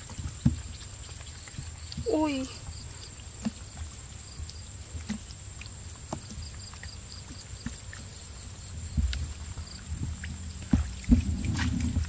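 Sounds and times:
low rumble: 8.7 - 12.0.

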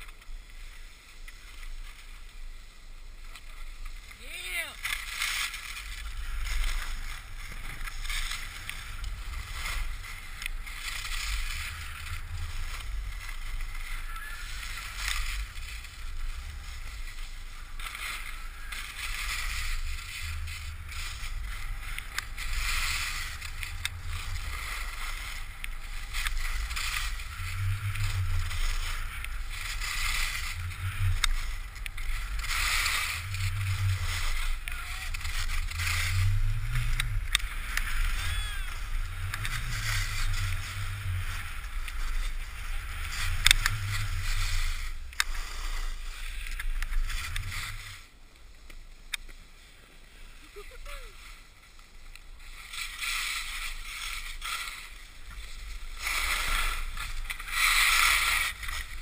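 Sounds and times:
skis scraping over snow: 0.0 - 59.0
wind rumble on microphone: 5.8 - 48.1.

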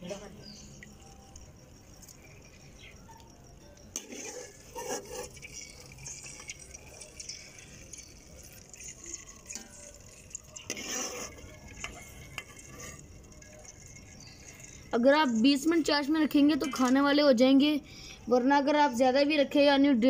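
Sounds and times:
metal skimmer clinking on pots: 2.0 - 17.2.

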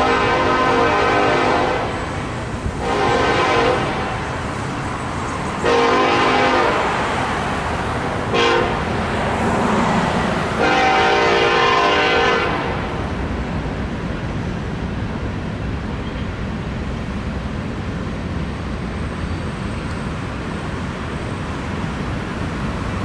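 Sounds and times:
train air horn blasts: 0.0 - 1.9, 2.8 - 4.2, 5.6 - 7.0, 8.3 - 8.8, 10.6 - 12.8
train rumbling: 0.0 - 23.0.

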